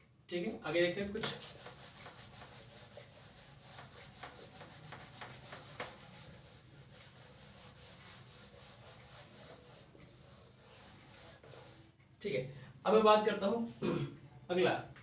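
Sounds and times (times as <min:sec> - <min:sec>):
duster rubbing on whiteboard: 0:01.1 - 0:12.0.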